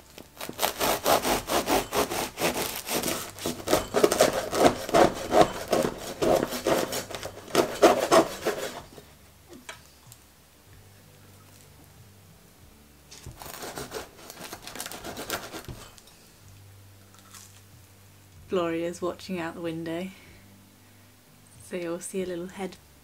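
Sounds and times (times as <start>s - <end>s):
bread knife sawing through crust: 0.4s - 9.0s, 13.4s - 16.0s.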